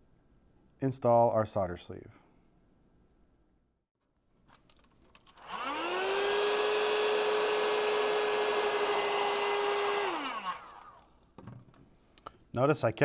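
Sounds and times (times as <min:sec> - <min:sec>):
heat gun fan whine and hiss: 0:05.5 - 0:11.0.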